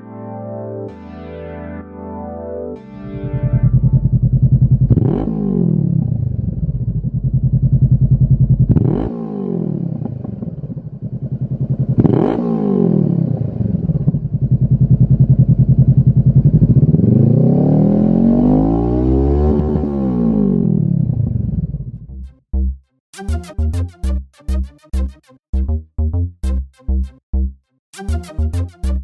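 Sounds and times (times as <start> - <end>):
motorcycle engine revving: 3.2 - 22.0.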